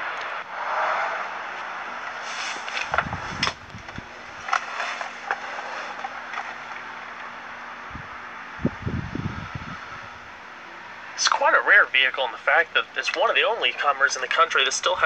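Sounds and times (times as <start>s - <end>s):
clicks and scrapes: 1.6s - 6.9s
engine idling hiss in cab: 2.2s - 2.8s.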